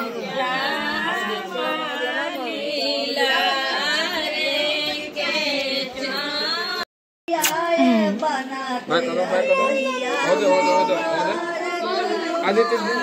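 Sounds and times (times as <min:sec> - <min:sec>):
women singing folk song: 0:00.0 - 0:06.8, 0:07.4 - 0:09.4.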